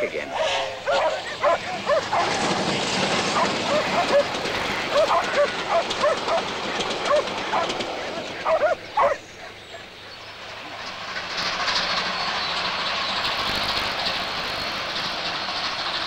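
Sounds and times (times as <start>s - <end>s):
steady rushing noise: 0.0s - 16.0s
dog barking: 0.3s - 2.4s, 3.3s - 7.8s, 8.4s - 9.8s.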